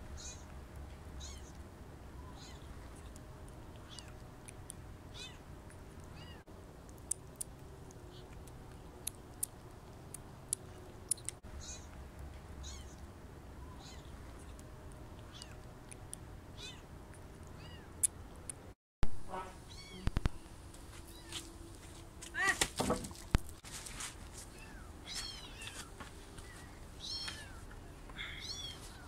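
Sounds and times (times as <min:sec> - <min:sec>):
sharp clicks: 0:06.8 - 0:11.4
kitten mewing: 0:12.6 - 0:13.0, 0:13.7 - 0:14.1.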